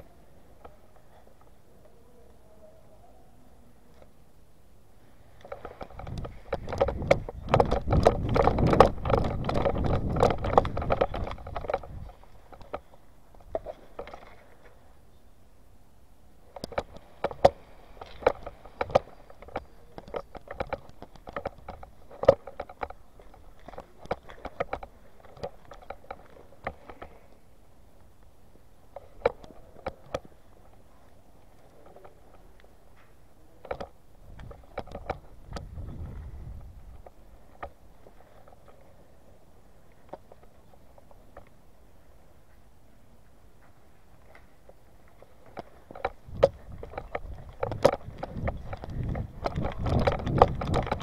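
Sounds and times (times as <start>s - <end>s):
lone clicks: 5.1s - 14.9s, 16.4s - 51.0s
microphone handling rumble: 5.5s - 12.5s, 34.2s - 37.3s, 46.1s - 51.0s.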